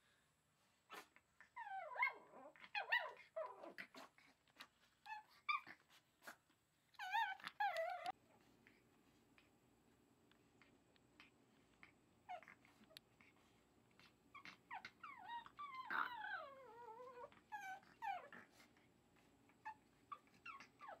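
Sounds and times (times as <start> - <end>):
puppy whimpering and whining: 0.9 - 6.4, 7.0 - 8.2, 12.2 - 13.4, 14.0 - 21.0.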